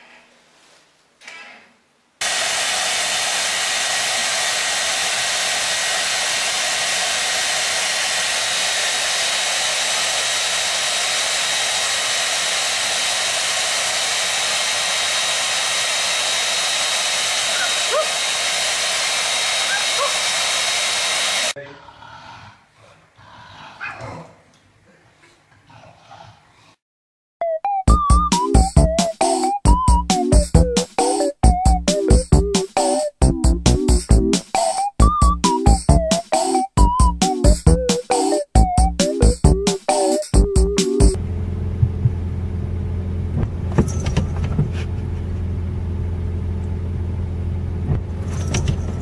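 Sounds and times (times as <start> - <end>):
hair dryer running: 2.2 - 21.6.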